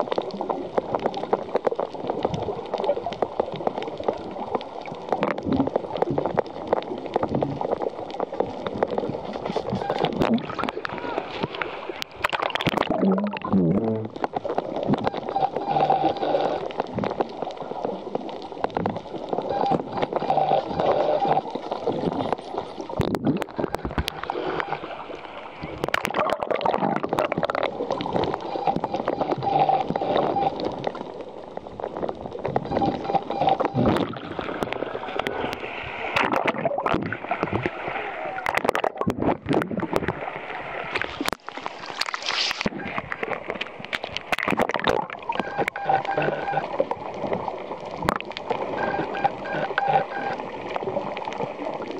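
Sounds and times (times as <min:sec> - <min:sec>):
dolphin buzzing pulsed calls: 0:15.1 - 0:16.7, 0:19.5 - 0:21.5, 0:28.4 - 0:30.6, 0:32.7 - 0:33.9, 0:45.4 - 0:46.7, 0:48.7 - 0:50.4
seawater sloshing and splashing: 0:31.7 - 0:51.9.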